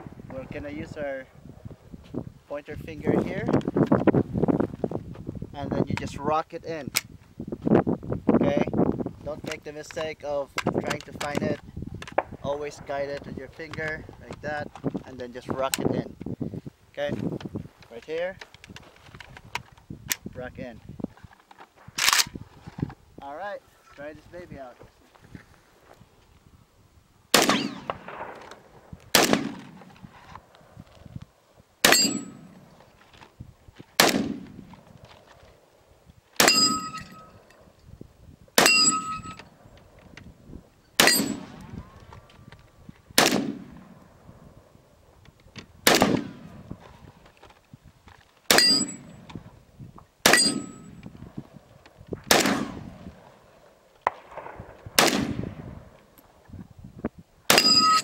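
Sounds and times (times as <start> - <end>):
rifle shots with echo: 27.3 - 30.8, 31.8 - 32.7, 34.0 - 34.7, 36.4 - 37.7, 38.6 - 39.5, 41.0 - 42.0, 43.2 - 44.0, 45.8 - 46.7, 48.5 - 49.3, 50.2 - 51.0, 52.2 - 56.2, 57.5 - 58.0
metallic ring: 31.9 - 32.5, 36.4 - 37.6, 38.6 - 39.5, 41.0 - 41.4, 48.6 - 49.2, 50.3 - 51.0, 57.5 - 58.0.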